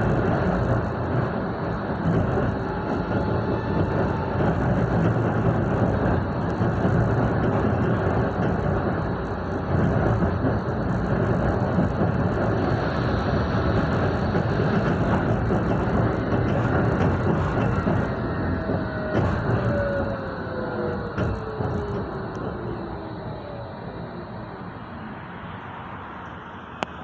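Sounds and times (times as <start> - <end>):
tram wheels rumbling on rails: 0.0 - 27.0.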